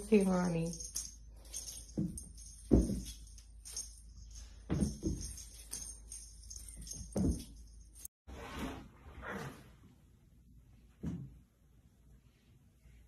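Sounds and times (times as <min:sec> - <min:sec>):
jingle bells shaking: 0:00.0 - 0:08.1.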